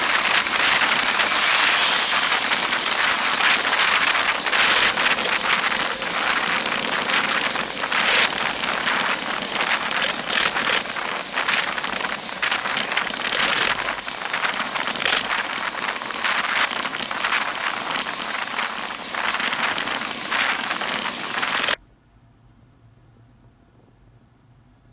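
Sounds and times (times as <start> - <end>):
wind rushing over microphone: 0.0 - 21.8.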